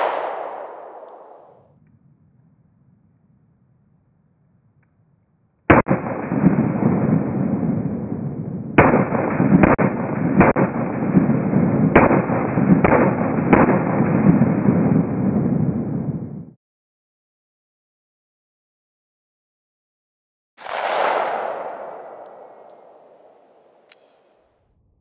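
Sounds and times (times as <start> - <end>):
slowed gunshots booming: 0.0 - 1.6, 5.7 - 16.6, 20.6 - 24.5.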